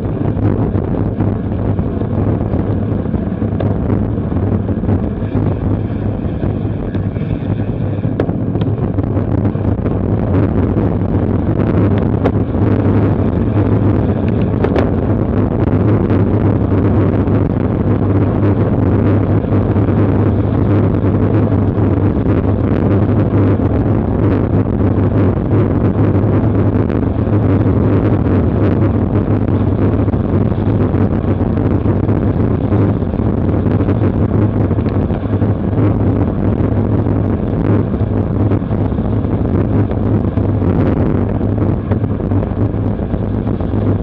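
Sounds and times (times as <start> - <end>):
bike tyres on wet road: 0.0 - 44.0
wind buffeting microphone: 0.0 - 44.0.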